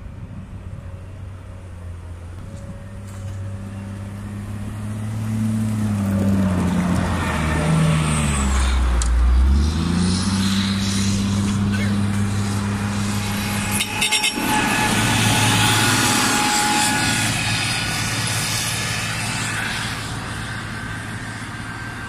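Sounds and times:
deep engine rumble: 0:00.0 - 0:22.0
diesel engines running: 0:00.0 - 0:22.0.

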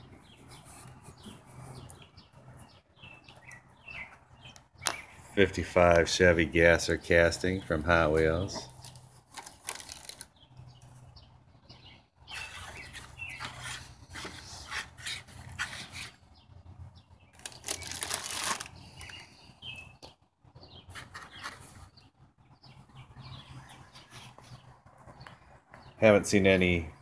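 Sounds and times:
plastic bag and cardboard rustling: 0:08.3 - 0:10.3, 0:17.4 - 0:19.2.

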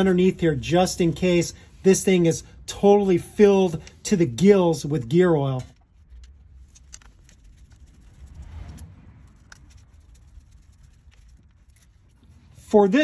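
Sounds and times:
tools clicking and scraping: 0:05.5 - 0:12.3.

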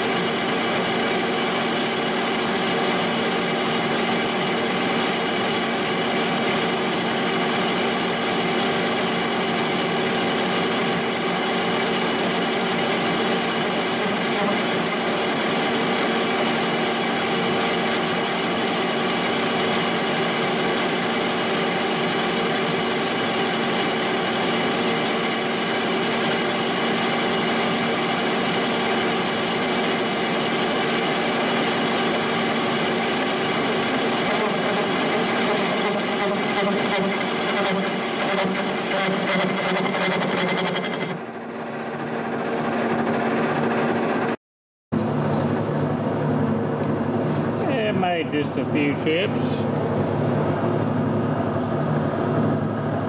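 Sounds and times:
milling machine cutting metal: 0:00.0 - 0:41.3.

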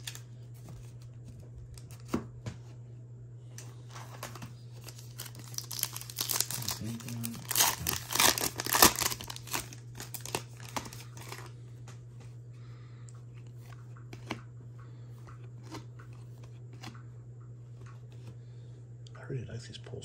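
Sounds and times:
low hum: 0:00.0 - 0:20.0
wrapper crinkling: 0:04.1 - 0:11.5.

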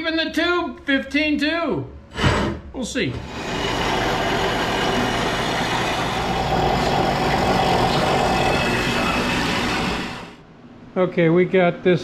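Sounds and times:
band saw cutting steel: 0:03.2 - 0:10.4.

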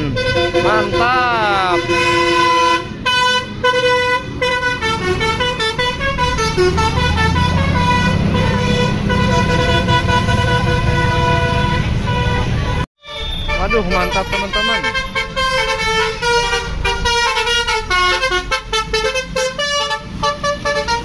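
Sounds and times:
bus engine rumble: 0:00.0 - 0:21.0
musical air horn playing a tune: 0:00.0 - 0:21.0.

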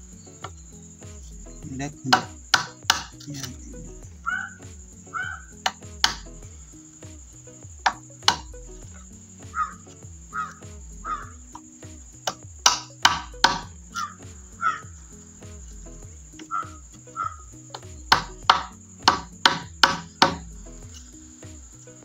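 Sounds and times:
hammer on chisel into bamboo: 0:02.1 - 0:03.3, 0:05.7 - 0:06.3, 0:07.9 - 0:08.5, 0:12.3 - 0:13.7, 0:18.1 - 0:20.5.

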